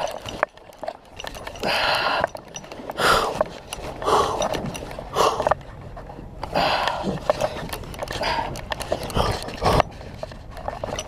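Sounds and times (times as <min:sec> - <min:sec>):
man breathing hard: 0:01.6 - 0:02.4, 0:03.0 - 0:03.4, 0:04.0 - 0:05.6, 0:06.5 - 0:09.8.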